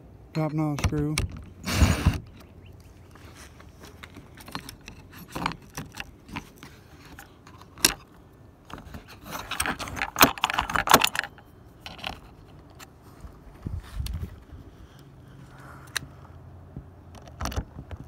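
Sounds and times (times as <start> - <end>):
lock hardware rattling: 0.4 - 2.4, 3.8 - 12.9.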